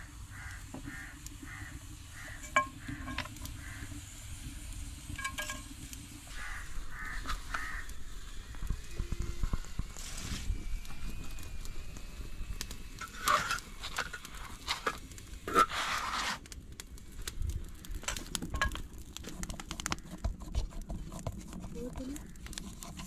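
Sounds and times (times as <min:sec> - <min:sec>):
flatbread sizzling in oil: 0:00.0 - 0:21.4
metal knife scraping pan: 0:13.0 - 0:16.4.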